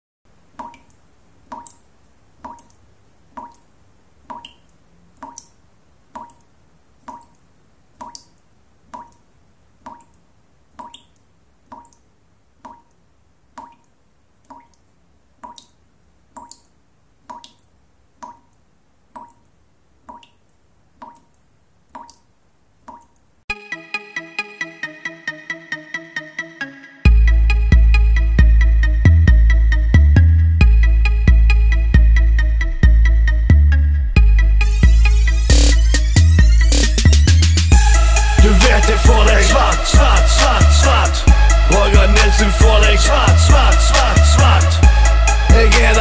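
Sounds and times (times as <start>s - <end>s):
water drops plopping: 0.6s - 1.8s, 2.4s - 2.8s, 3.4s - 3.7s, 4.3s - 5.6s, 6.2s - 7.4s, 8.0s - 9.2s, 9.9s - 10.2s, 10.8s - 12.0s, 12.6s - 13.0s, 13.6s - 14.8s, 15.4s - 18.6s, 19.2s - 19.5s, 20.1s - 20.4s, 21.0s - 22.3s, 22.9s - 23.2s.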